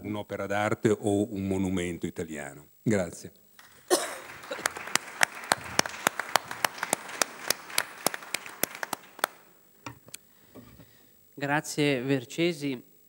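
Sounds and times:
loud close claps: 3.6 - 9.5
audience applauding: 3.6 - 9.6.

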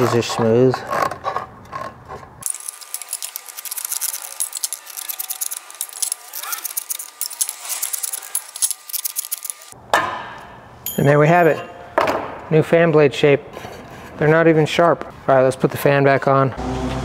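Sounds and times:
tin snips cutting metal: 2.4 - 9.8.

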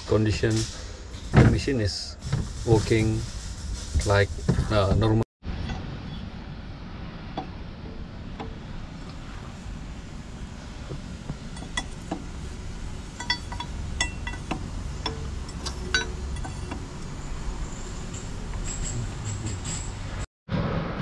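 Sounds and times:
low steady rumble: 0.0 - 21.0
spanner clinking on metal fittings: 11.3 - 20.0.

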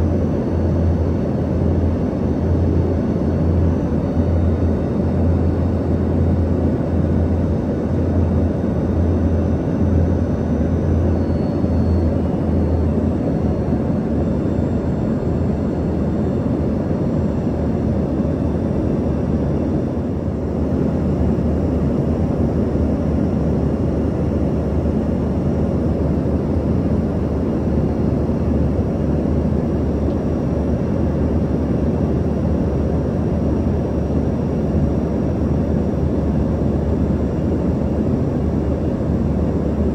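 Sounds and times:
jet engine rumble and rush: 0.0 - 39.9
faint high whines: 8.0 - 20.0.

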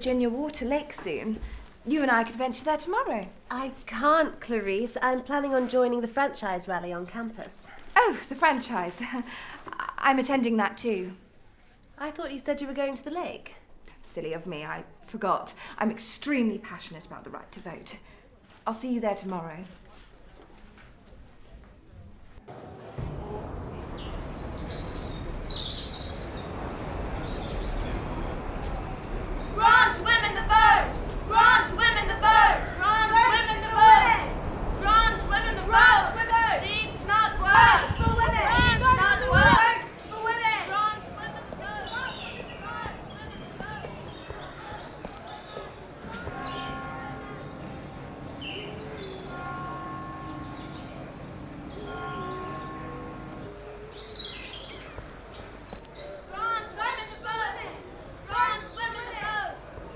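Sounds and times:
outdoor ambience: 0.0 - 59.9
small birds chirping: 23.9 - 32.0, 36.6 - 57.7.

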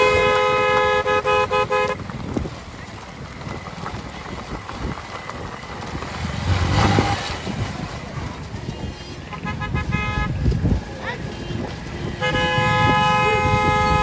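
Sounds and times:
motorbike horns honking: 0.0 - 2.0, 8.6 - 10.4, 11.1 - 14.0
hooves and wheels clattering: 0.0 - 14.0.

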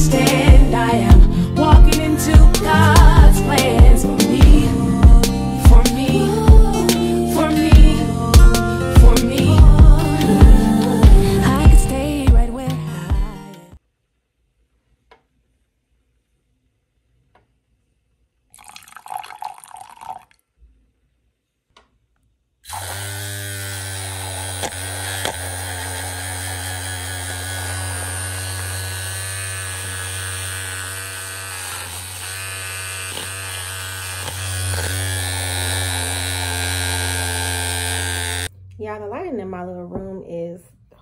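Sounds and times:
electric mixer humming: 0.0 - 12.2, 22.7 - 38.5
liquid pouring into glass: 18.6 - 20.4.

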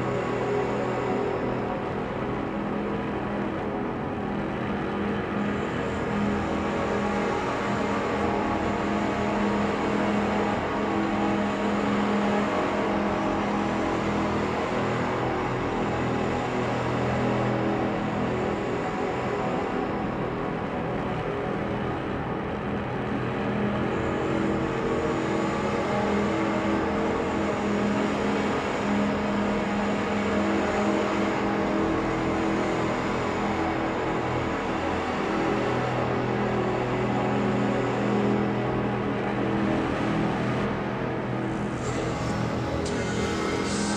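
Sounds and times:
ambient drone music: 24.9 - 43.9.

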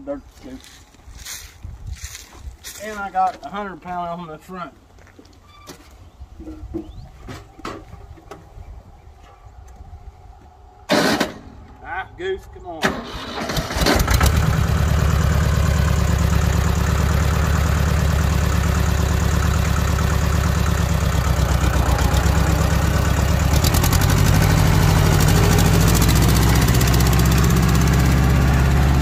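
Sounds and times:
tractor engine running: 12.9 - 29.0.

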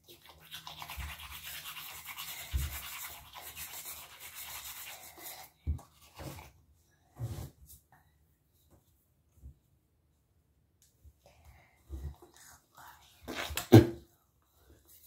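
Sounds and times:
toothbrush scrubbing teeth: 0.0 - 6.5.

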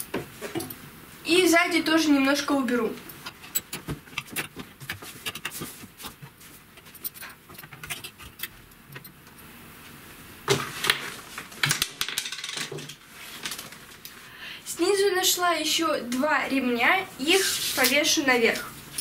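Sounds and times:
clothes rustling: 3.7 - 8.2, 17.0 - 19.0.

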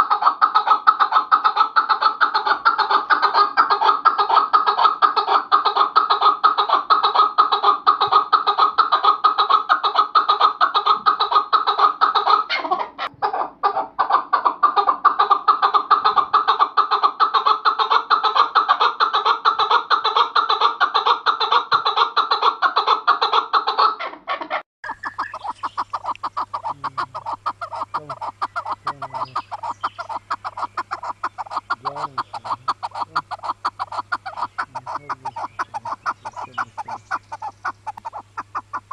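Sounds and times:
low steady hum: 24.8 - 38.9
partridges calling chuck notes: 24.8 - 38.9.

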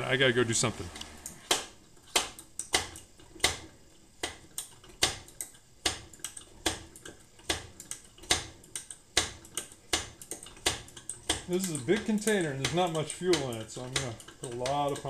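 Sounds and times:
hand pump clicking: 10.2 - 15.0.

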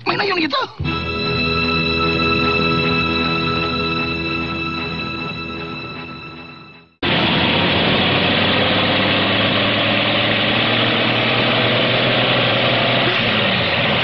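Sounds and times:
music: 0.8 - 7.0
vehicle engine running: 7.0 - 14.0.

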